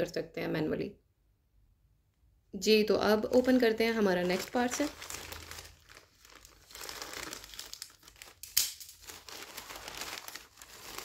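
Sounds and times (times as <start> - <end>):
packaging crinkling and rustling: 3.2 - 11.0.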